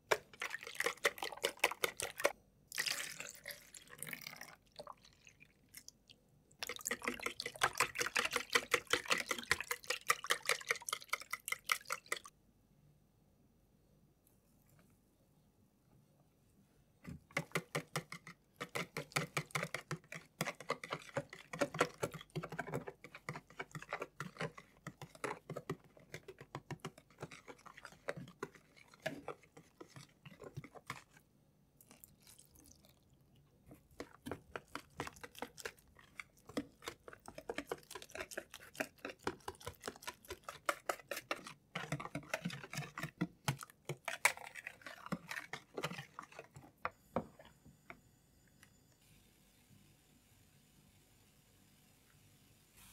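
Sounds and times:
whisk beating batter in bowl: 0.0s - 2.4s, 6.6s - 12.3s, 17.0s - 31.3s, 33.7s - 47.5s.

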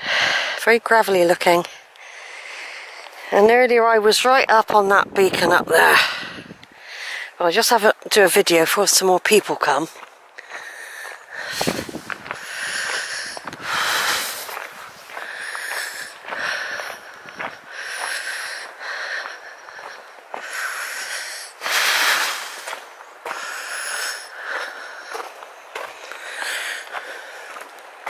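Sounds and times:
person breathing hard: 0.0s - 0.6s, 1.7s - 3.3s, 6.0s - 7.4s, 10.4s - 25.3s, 25.9s - 27.6s.

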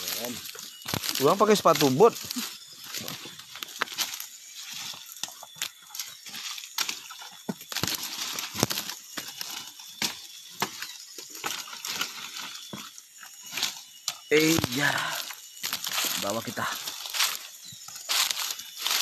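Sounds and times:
footsteps through dry undergrowth: 0.0s - 19.0s
twigs snapping: 0.1s - 4.3s, 4.9s - 12.7s.

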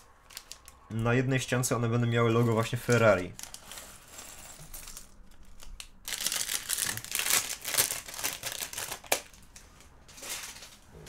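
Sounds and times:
plastic bags crackling: 0.0s - 0.9s, 2.9s - 10.9s
plastic bag rustling: 3.4s - 11.0s.

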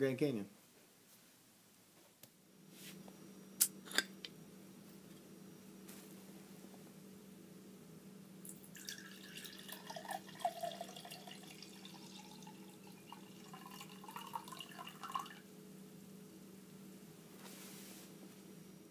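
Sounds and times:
soda pouring into glass mug: 8.5s - 15.4s.

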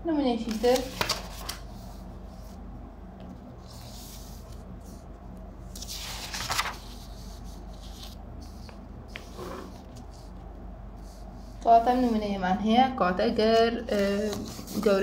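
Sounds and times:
steady low hum: 0.0s - 15.0s
paper rustling: 0.4s - 2.6s, 3.2s - 5.0s, 5.7s - 10.4s, 13.9s - 15.0s.

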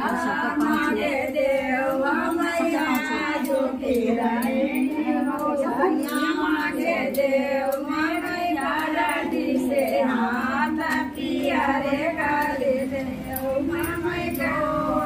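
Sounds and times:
women singing together: 0.0s - 15.0s.

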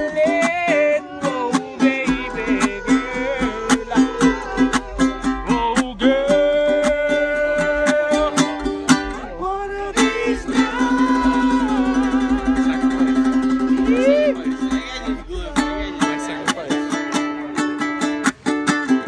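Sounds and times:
ukulele strumming: 0.0s - 19.0s.

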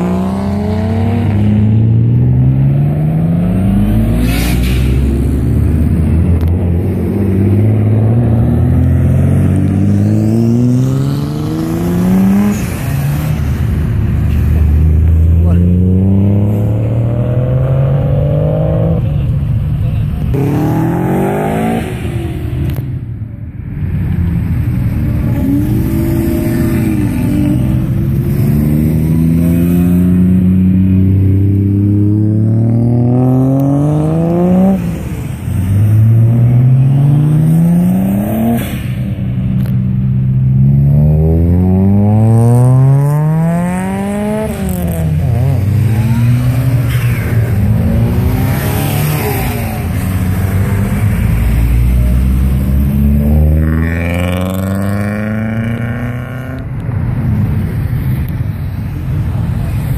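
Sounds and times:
car engines accelerating past: 24.4s - 56.8s.

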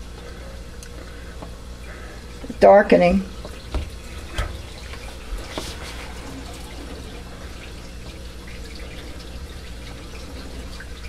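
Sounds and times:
low hum: 3.3s - 10.8s
water trickling and dripping in sink: 3.3s - 11.0s.

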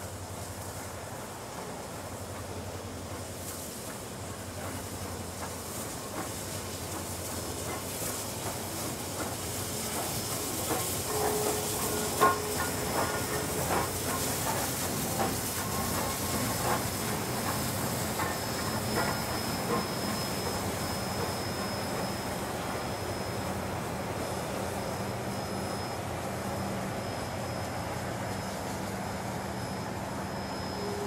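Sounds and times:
steam locomotive rumble and hiss: 0.0s - 31.0s
train wheels clicking over rail joints: 0.4s - 24.4s.

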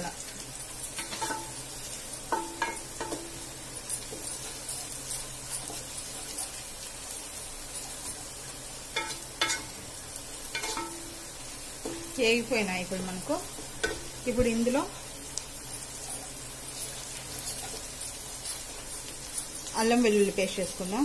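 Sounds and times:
onions sizzling in oil: 0.0s - 21.0s
spatula knocking on pan: 2.3s - 3.4s, 10.6s - 11.1s, 11.8s - 12.2s, 13.8s - 14.2s.

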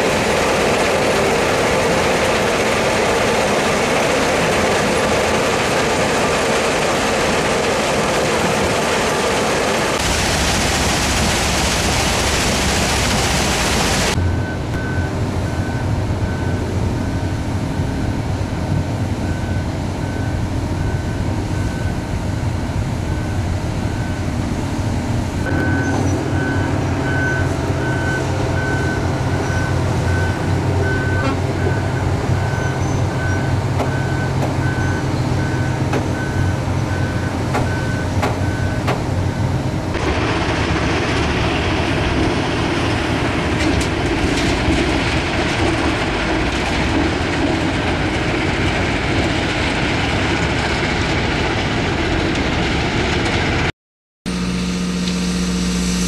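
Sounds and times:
crushing plant machinery hum: 0.0s - 14.3s, 22.3s - 53.7s
harsh machinery noise: 0.0s - 19.2s, 21.2s - 53.7s, 54.3s - 56.0s
reversing alarm beeping: 14.1s - 18.4s, 19.2s - 22.2s, 25.4s - 39.6s.

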